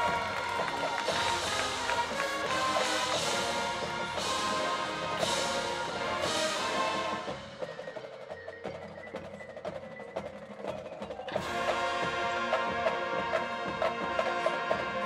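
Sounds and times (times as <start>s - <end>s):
marching band playing: 0.0s - 15.0s.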